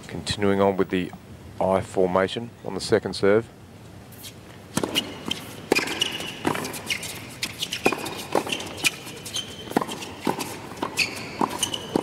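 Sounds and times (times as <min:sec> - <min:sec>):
sneakers squeaking on court: 0:04.2 - 0:12.0
racket hitting ball: 0:04.7 - 0:12.0.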